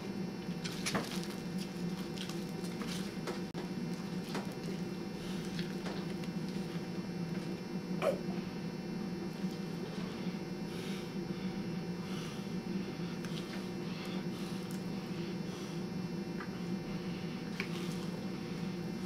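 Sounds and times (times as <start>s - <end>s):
electrical hum: 0.0s - 19.0s
wet smacking eating sounds: 17.5s - 18.2s.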